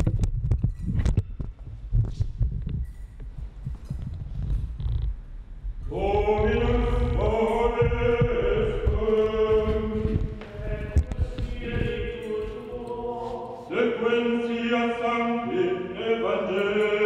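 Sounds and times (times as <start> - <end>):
low rumble: 0.0 - 13.2
plainchant singing: 5.9 - 17.0.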